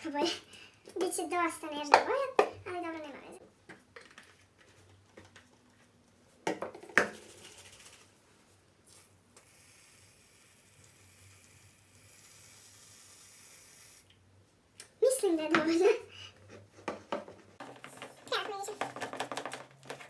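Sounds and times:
aerosol can spraying foam: 0:08.9 - 0:14.0.

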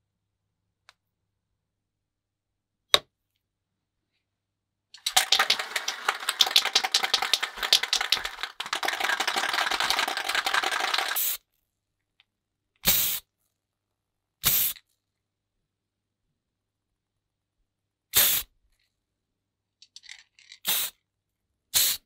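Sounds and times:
aerosol can rattling: 0:05.0 - 0:11.3.

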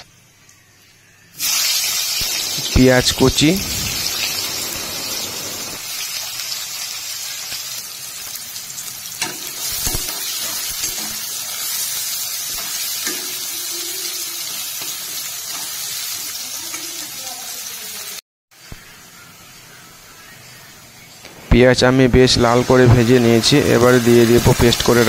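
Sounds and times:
onions sizzling in hot oil: 0:01.3 - 0:18.2, 0:22.0 - 0:25.0.

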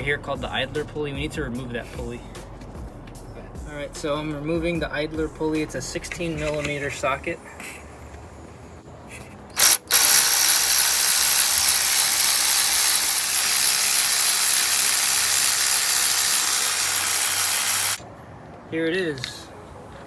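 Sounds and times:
electric ratchet spinning: 0:09.6 - 0:18.0.

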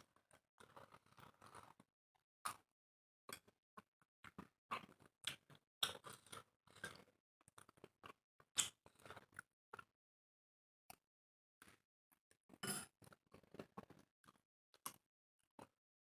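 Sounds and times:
people chewing food: 0:00.2 - 0:02.7, 0:03.3 - 0:09.9, 0:11.6 - 0:11.8, 0:12.5 - 0:15.8.

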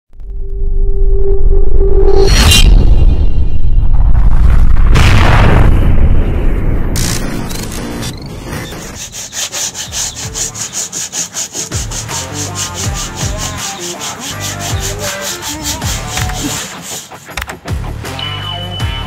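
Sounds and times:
sandpaper rubbing strokes: 0:08.5 - 0:17.6.

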